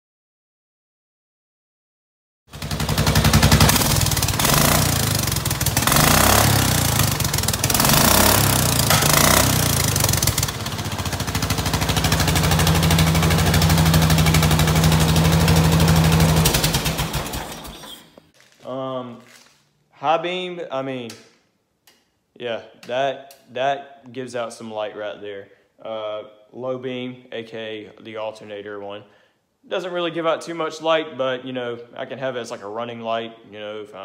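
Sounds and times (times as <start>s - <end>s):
riding lawnmower engine running: 2.5s - 18.0s.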